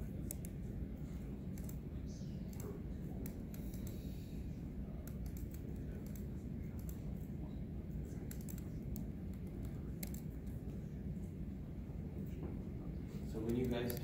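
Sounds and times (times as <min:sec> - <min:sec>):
low room hum: 0:00.0 - 0:14.0
keyboard typing: 0:01.5 - 0:01.8, 0:04.9 - 0:07.1, 0:08.2 - 0:10.6.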